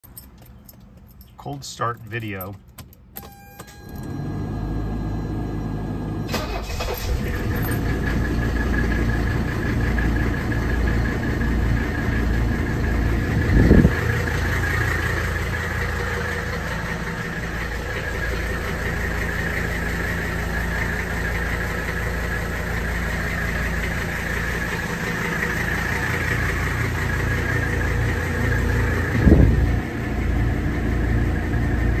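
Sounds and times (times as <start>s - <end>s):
diesel engine idling: 3.8s - 32.0s.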